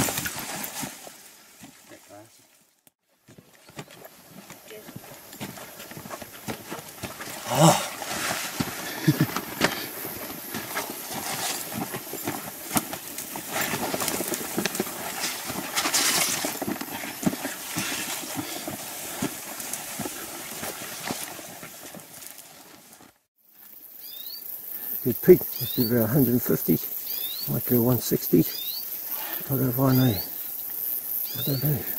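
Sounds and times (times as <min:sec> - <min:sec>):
branches rustling: 0:00.0 - 0:23.3
footsteps through scrub: 0:03.2 - 0:23.3.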